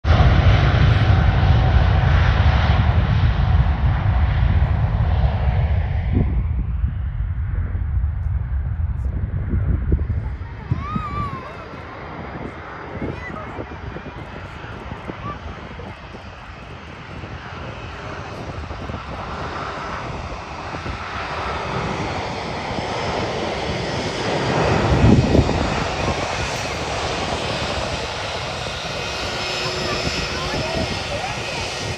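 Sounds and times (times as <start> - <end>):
jet engine roar: 0.0 - 31.9.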